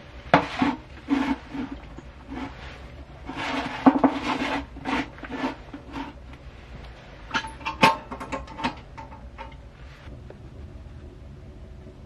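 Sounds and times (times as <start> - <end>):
utensils scraping metal dishes: 0.3 - 6.2.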